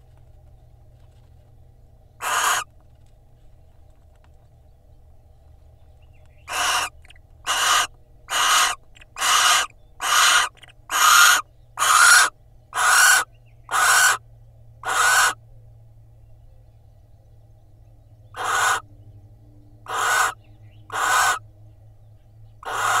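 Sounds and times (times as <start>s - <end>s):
owl rasping calls: 2.2s - 2.7s, 6.4s - 14.2s, 14.8s - 15.4s, 18.3s - 18.9s, 19.8s - 21.5s, 22.6s - 23.0s.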